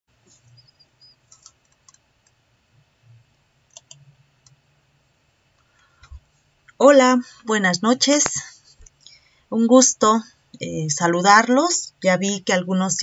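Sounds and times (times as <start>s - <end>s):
low steady hum: 0.1s - 13.0s
faint clicks: 3.7s - 4.6s.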